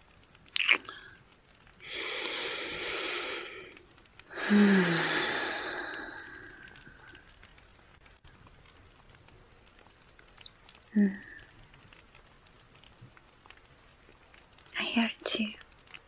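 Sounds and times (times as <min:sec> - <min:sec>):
woman breathing in: 0:01.8 - 0:07.1
woman sighing: 0:04.3 - 0:06.6.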